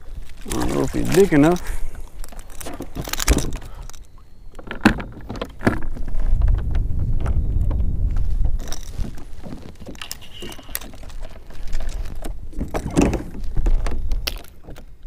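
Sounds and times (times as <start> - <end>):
wind rumble on microphone: 4.8 - 15.0.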